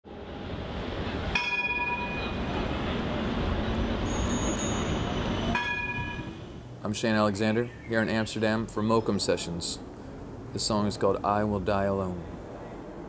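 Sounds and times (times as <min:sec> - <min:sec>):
city street noise: 0:00.0 - 0:13.0
tram running: 0:00.1 - 0:06.9
tram bell ringing: 0:01.0 - 0:06.6
high-pitched trilling ring: 0:04.0 - 0:06.4.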